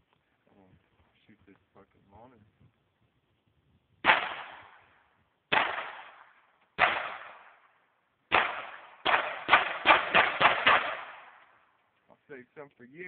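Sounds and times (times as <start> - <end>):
handgun shots echoing: 4.0 - 4.8, 5.5 - 7.6, 8.3 - 11.5.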